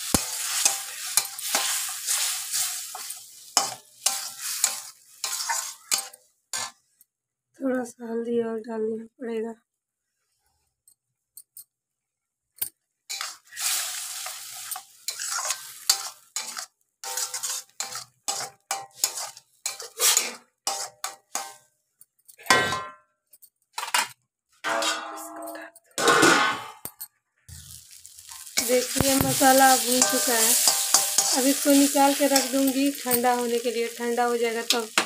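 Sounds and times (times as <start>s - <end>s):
spatula scraping metal pan: 0.0s - 6.8s, 13.1s - 21.6s, 28.3s - 35.0s
metal lid clanking onto pan: 24.7s - 26.7s.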